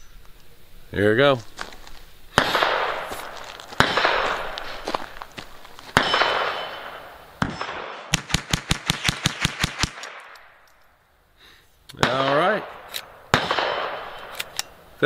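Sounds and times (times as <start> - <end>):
rapid sharp gunfire cracks: 2.3 - 4.6, 7.4 - 10.3, 12.0 - 12.7, 13.3 - 14.2
echoing rifle shots: 2.3 - 4.9, 5.9 - 10.6, 12.0 - 14.6.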